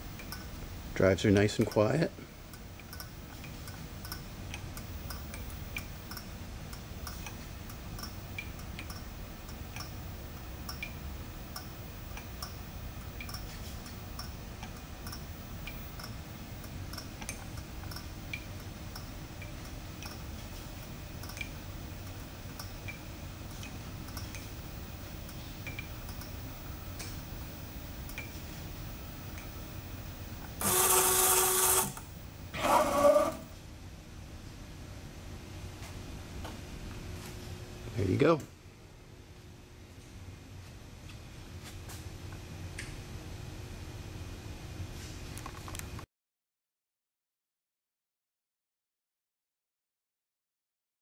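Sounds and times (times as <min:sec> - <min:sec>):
machine axis drives humming: 0:00.0 - 0:33.6.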